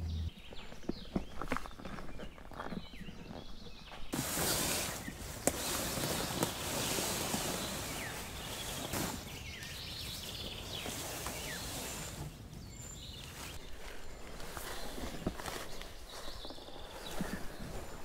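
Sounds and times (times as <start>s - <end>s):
footsteps in grass: 0.1s - 18.0s
dinghy scraping through plants: 0.9s - 18.0s.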